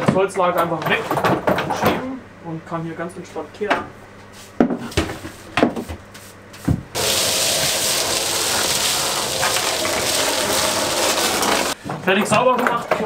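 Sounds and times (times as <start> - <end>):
dust extractor running: 7.0 - 11.8
hose sucking wood shavings: 7.0 - 11.8.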